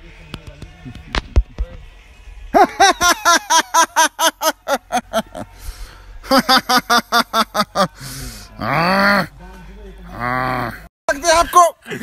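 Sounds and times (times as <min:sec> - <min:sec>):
man cackling laughter: 0:02.6 - 0:05.4, 0:06.2 - 0:08.0.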